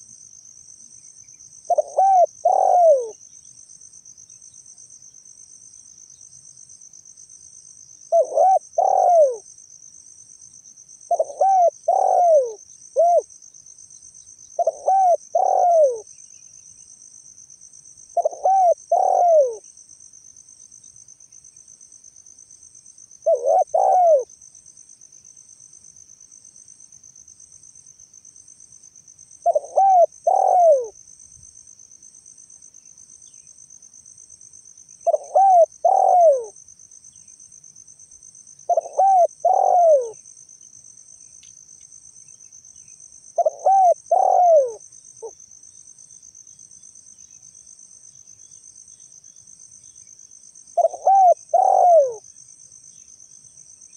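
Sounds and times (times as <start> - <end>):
crickets chirring: 0.0 - 53.9
dove cooing: 1.7 - 3.2, 8.1 - 9.4, 11.1 - 13.3, 14.6 - 16.1, 18.2 - 19.6, 23.2 - 24.3, 29.4 - 31.0, 35.0 - 36.6, 38.7 - 40.2, 43.4 - 45.4, 50.8 - 52.2.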